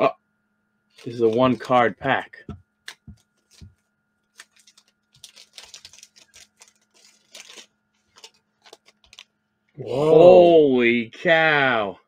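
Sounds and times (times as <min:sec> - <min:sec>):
wrapper crinkling: 0:00.9 - 0:01.9, 0:02.9 - 0:09.3.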